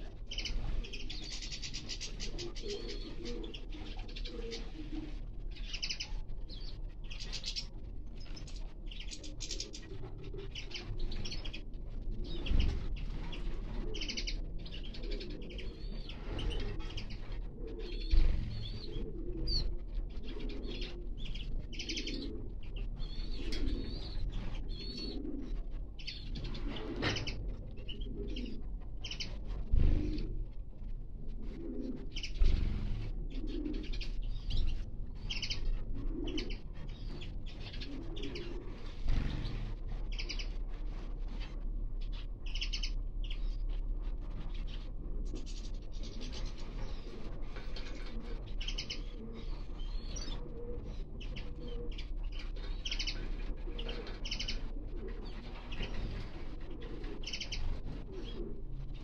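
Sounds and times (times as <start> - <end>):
finches chirping and twittering: 0.0 - 30.2, 31.9 - 43.7, 44.3 - 59.0
low cooing: 1.8 - 5.3, 14.9 - 25.7, 37.7 - 39.3.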